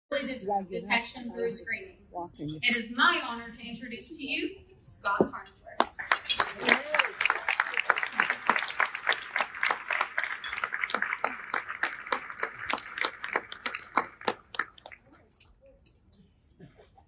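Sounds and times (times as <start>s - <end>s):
audience applauding: 5.8s - 15.1s.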